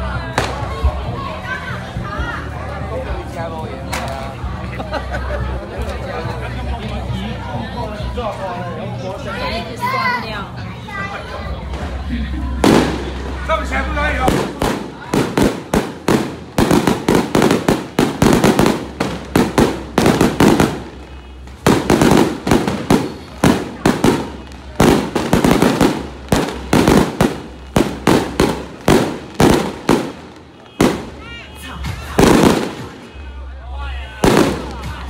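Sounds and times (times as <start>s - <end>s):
firecrackers crackling and banging: 0.3s - 1.0s, 11.6s - 33.2s, 34.2s - 35.0s.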